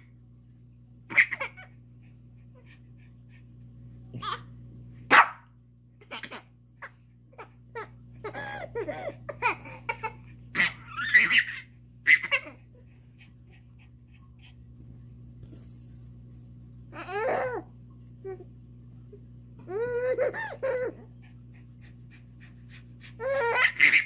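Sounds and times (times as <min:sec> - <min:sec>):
baby laughing and squealing: 0:01.1 - 0:01.8, 0:07.4 - 0:12.6, 0:17.0 - 0:17.7, 0:19.7 - 0:21.1, 0:23.1 - 0:24.0
small dog barking: 0:05.1 - 0:05.5.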